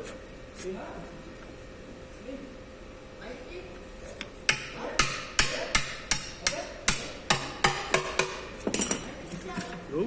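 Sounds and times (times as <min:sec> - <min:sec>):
pry bar knocking on metal: 0:04.5 - 0:08.9.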